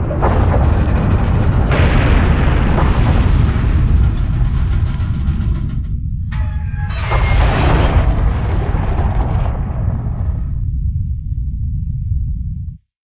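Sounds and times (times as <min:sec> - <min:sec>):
noisy roar: 0:00.0 - 0:10.6
deep earthquake rumble: 0:00.0 - 0:12.8.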